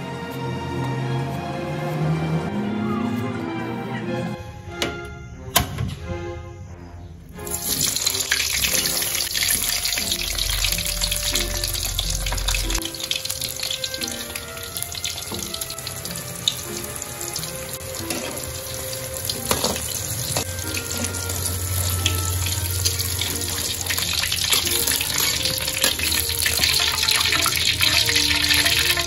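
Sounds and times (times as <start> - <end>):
vegetables sizzling in hot oil: 7.4 - 29.0
metal spatula scraping a pan: 17.8 - 18.8.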